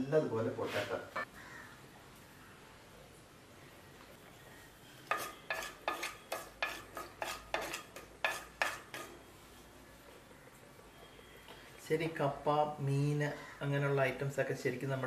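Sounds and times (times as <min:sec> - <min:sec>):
spatula scraping clay pot: 0:05.0 - 0:09.3.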